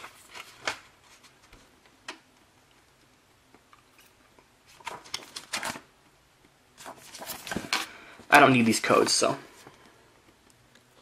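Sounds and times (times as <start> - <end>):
paper rustling: 0.0 - 1.7, 4.0 - 5.9, 6.8 - 9.8.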